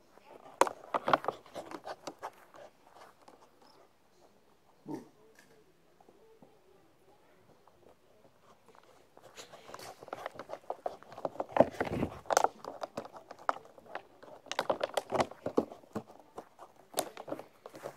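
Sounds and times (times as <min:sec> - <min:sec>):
rustling and scuffs: 0:08.2 - 0:17.9.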